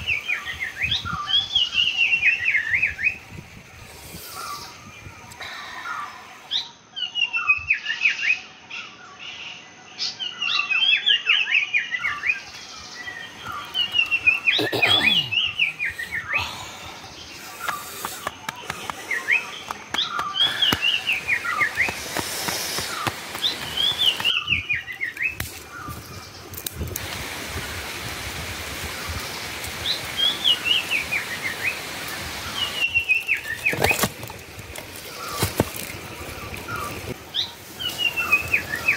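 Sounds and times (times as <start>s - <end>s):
songbird singing: 0.0s - 27.2s, 28.0s - 38.9s
steady background hiss: 12.2s - 33.7s.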